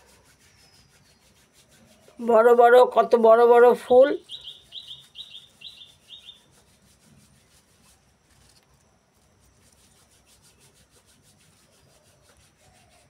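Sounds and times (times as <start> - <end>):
faint rubbing and rustling: 0.0 - 13.0
small bird chirping: 0.2 - 2.2, 3.8 - 6.6.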